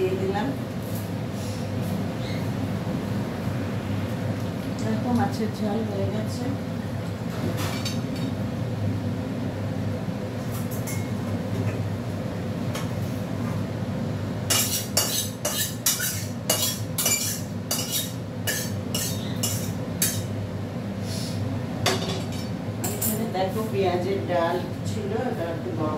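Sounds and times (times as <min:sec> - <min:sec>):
metal spoon clinking on steel pan: 0:14.5 - 0:20.3.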